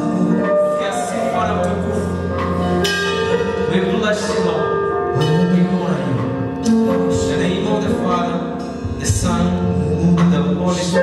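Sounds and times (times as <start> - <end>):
held instrumental chords: 0.0 - 11.0
man singing into microphone: 6.6 - 11.0.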